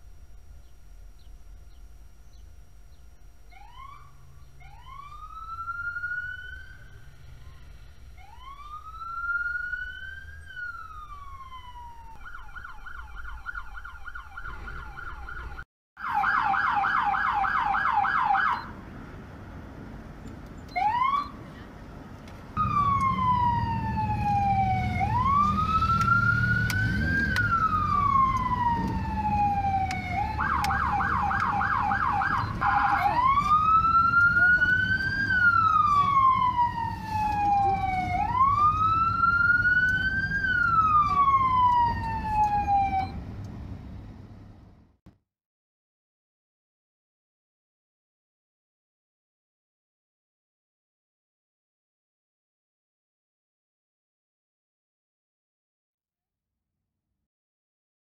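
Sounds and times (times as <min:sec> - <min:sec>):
engine and road rumble: 0:00.0 - 0:45.1
police siren wailing and yelping: 0:03.5 - 0:18.8, 0:20.7 - 0:21.5, 0:22.6 - 0:43.2.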